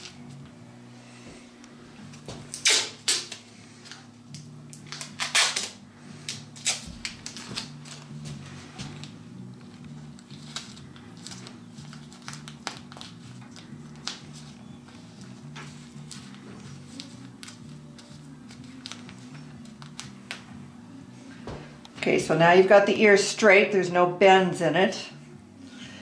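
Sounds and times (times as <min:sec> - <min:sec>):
tape crinkling: 0:02.1 - 0:20.6
tape ripped off roll: 0:02.5 - 0:03.4.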